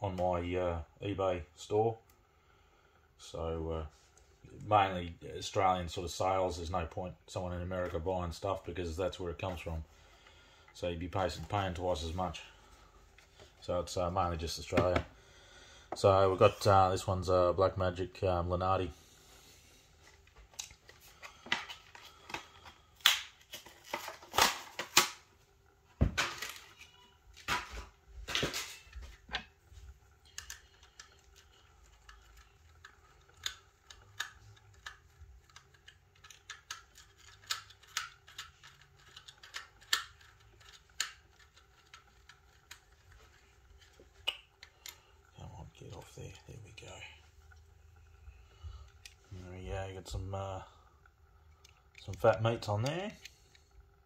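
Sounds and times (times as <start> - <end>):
plastic clicking and crackling: 20.0 - 25.3, 26.2 - 47.7.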